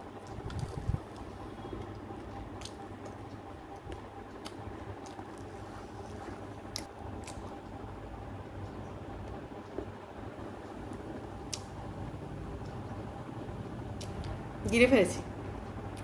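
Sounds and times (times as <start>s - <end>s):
steady low hum: 0.0s - 16.0s
person chewing food: 0.2s - 7.8s.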